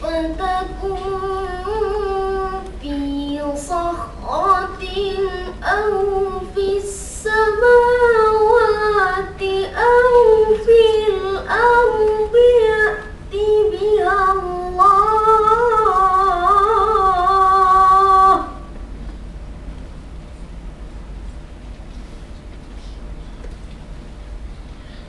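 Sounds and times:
boy chanting melodically: 0.0s - 18.7s.

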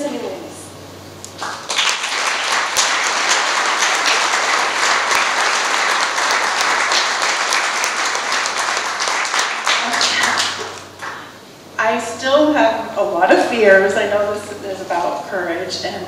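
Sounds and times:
audience applauding: 1.4s - 11.3s.

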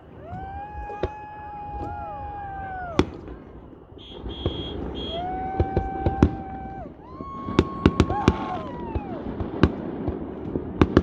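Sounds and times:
fireworks bangs: 0.0s - 11.0s
horn blasts: 4.0s - 5.3s.

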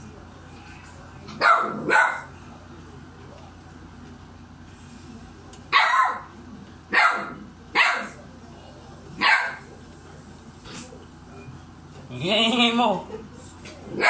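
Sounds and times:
dog barking: 1.4s - 2.3s, 5.7s - 6.3s, 6.9s - 8.2s, 9.2s - 9.7s.

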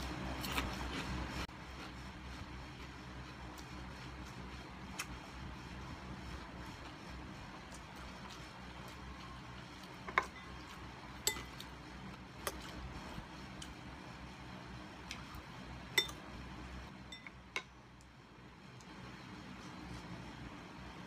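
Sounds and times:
metal spoon clinking on glass bowl: 16.0s - 16.2s, 17.1s - 17.7s.

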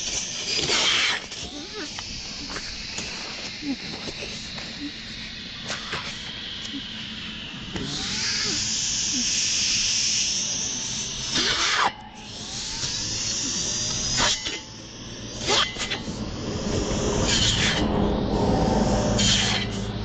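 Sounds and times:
brush cutter engine whining: 0.0s - 20.0s
short rasp: 11.3s - 12.0s.

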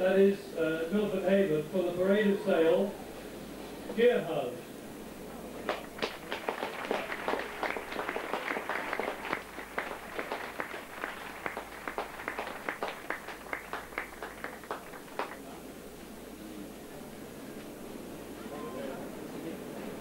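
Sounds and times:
crowd applauding: 5.6s - 15.5s.

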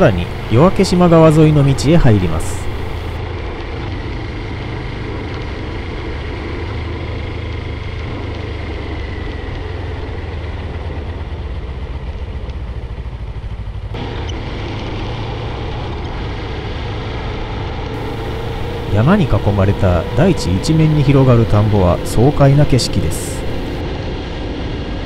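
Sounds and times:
vehicle engine hum: 0.0s - 25.0s
tyre and road noise: 18.0s - 23.8s.

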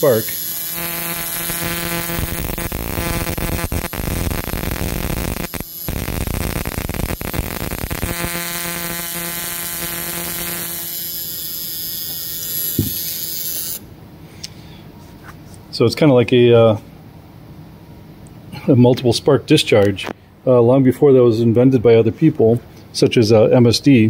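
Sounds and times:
buzz coil buzzing: 0.0s - 13.9s.

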